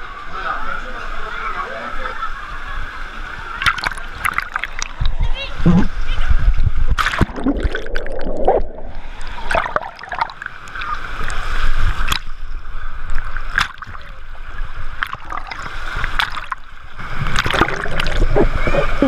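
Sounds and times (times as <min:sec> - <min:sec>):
rushing splashing water: 0:03.4 - 0:05.2, 0:06.9 - 0:19.0
sharp water splashes: 0:03.6 - 0:05.1, 0:06.9 - 0:12.4, 0:13.1 - 0:18.7.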